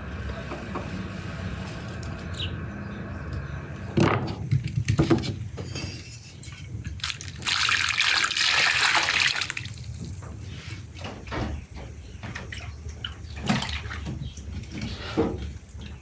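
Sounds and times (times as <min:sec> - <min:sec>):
kitchenware clinking: 0:05.2 - 0:07.0
water running: 0:07.0 - 0:10.4.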